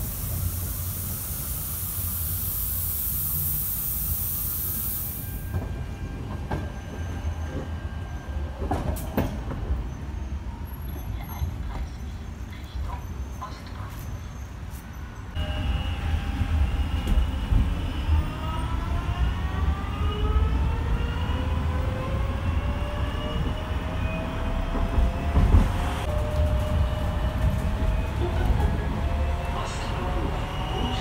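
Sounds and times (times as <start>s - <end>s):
electric tram motor whining: 15.4s - 22.6s.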